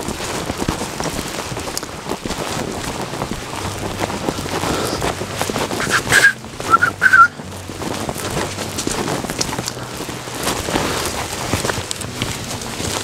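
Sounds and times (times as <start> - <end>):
footsteps on dirt trail: 0.0 - 13.0
person whistling short notes: 5.8 - 7.4.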